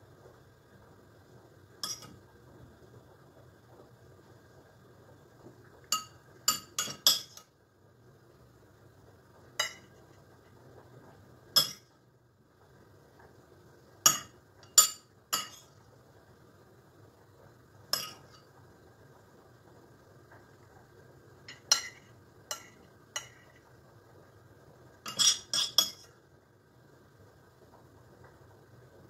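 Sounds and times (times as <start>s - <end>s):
metal spoon clinking on ceramic: 1.8s - 2.2s, 14.1s - 15.7s, 18.0s - 18.4s, 25.1s - 26.1s.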